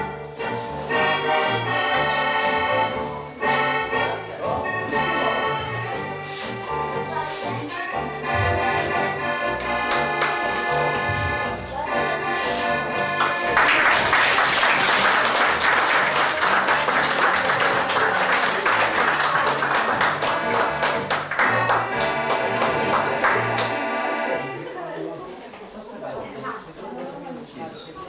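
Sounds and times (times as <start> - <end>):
electronic keyboard tune: 0.0 - 13.6
rhythmic bass: 4.4 - 13.5, 19.2 - 24.4
audience applauding: 9.6 - 10.8, 13.2 - 23.8.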